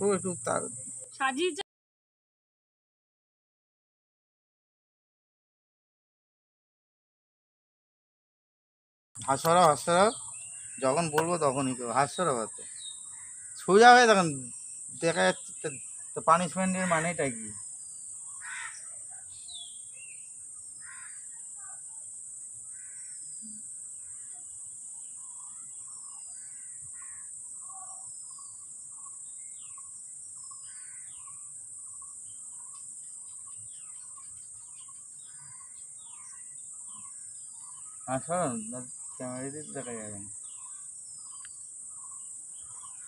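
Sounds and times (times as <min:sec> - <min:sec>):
birds chirping: 0:00.0 - 0:01.6, 0:09.2 - 0:43.0
high-pitched insect drone: 0:09.5 - 0:43.0.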